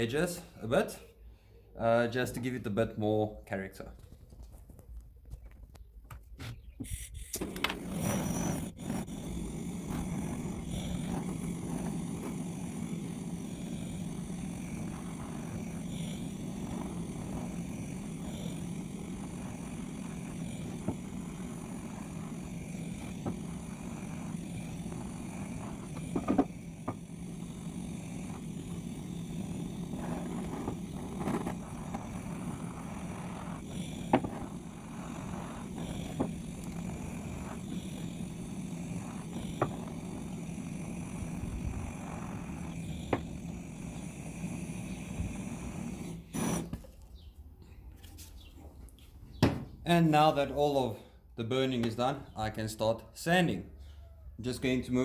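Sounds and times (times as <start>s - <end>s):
gas blowtorch burning: 6.5s - 47.3s.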